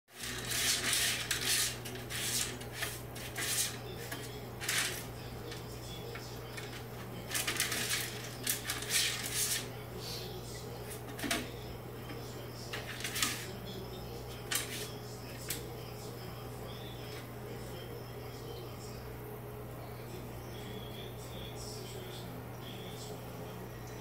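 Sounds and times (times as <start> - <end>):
cat scratching in litter: 0.1 - 9.8, 12.6 - 13.6, 14.4 - 15.6
steady low hum: 0.1 - 24.0.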